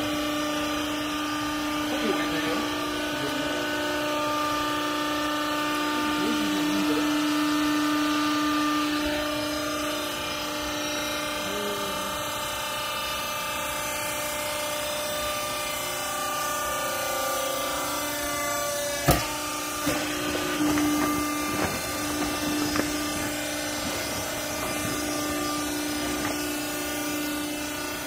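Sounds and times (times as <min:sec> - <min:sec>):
hydraulic unit humming: 0:00.0 - 0:28.0
sharp knocks: 0:19.0 - 0:26.5
rustling: 0:19.8 - 0:27.0.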